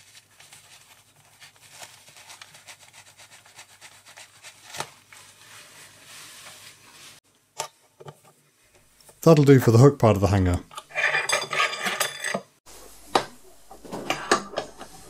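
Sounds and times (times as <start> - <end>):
cloth rubbing on steel bar: 0.0 - 7.2.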